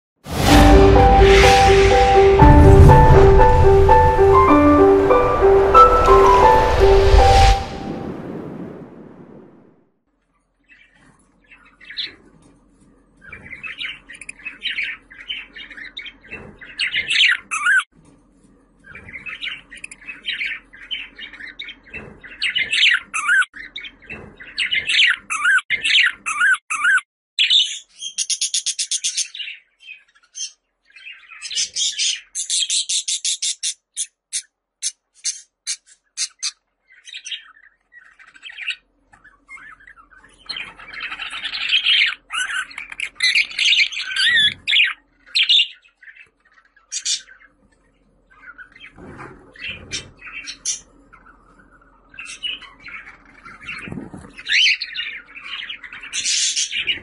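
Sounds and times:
budgerigar warbling and chattering: 0:38.3 - 0:46.2.

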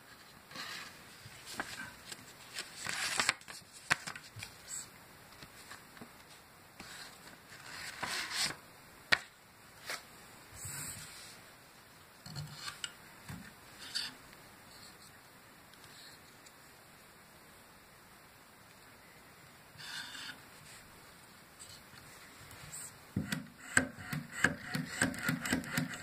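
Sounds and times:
soft rustling: 0:00.0 - 0:08.6, 0:20.5 - 0:23.0.

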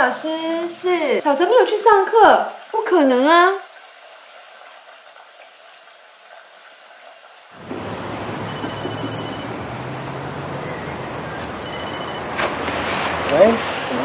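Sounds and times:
street background with low hum: 0:07.6 - 0:14.0
mobile phone ringtone: 0:08.4 - 0:09.5, 0:11.6 - 0:12.3.

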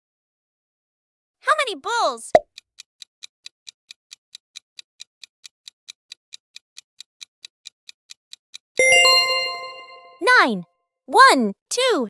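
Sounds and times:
fast clock-like ticking: 0:02.4 - 0:08.7
bright ringing chime: 0:08.8 - 0:10.2.

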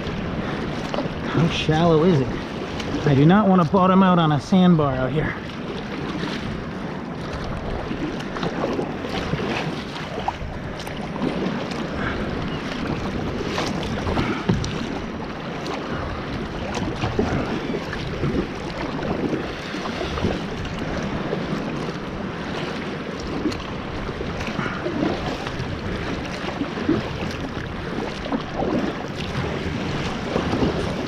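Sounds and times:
paddle splashes: 0:00.0 - 0:31.0
water rushing along hull: 0:00.0 - 0:31.0.

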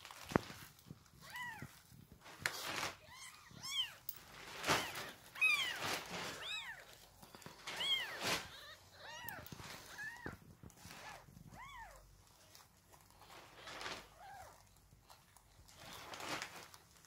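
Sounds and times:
rustling: 0:00.0 - 0:17.0
kittens mewing: 0:02.8 - 0:12.1.

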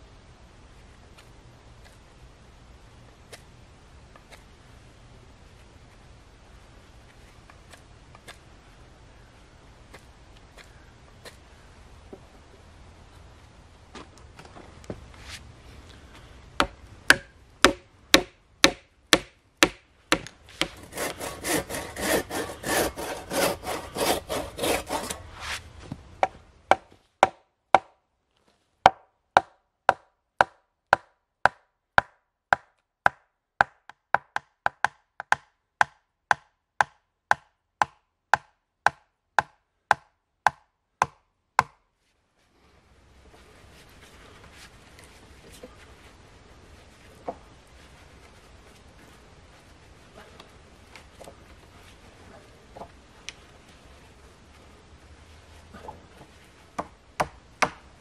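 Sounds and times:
hammer driving wooden peg: 0:16.6 - 0:21.8, 0:56.8 - 0:57.8
rasping on wood: 0:20.6 - 0:25.2.

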